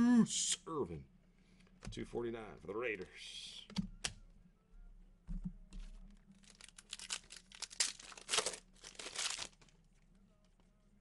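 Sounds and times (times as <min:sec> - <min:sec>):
foil wrapper tearing and crinkling: 0:06.3 - 0:09.8.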